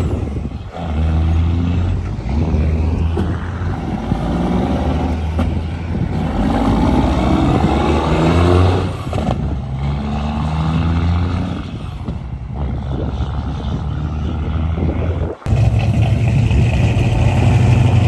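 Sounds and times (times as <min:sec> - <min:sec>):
diesel truck engine pulling away: 0:00.0 - 0:18.0.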